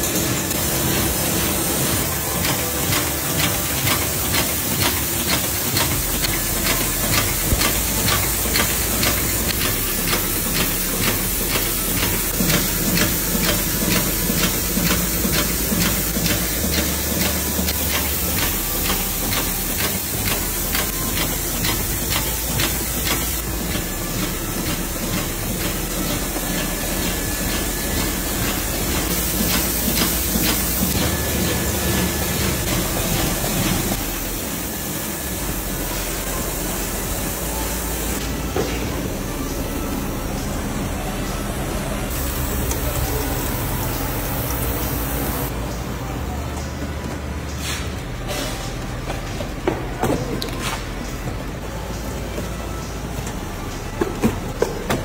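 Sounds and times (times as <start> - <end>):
machine hissing: 0.0 - 39.0, 42.0 - 45.5.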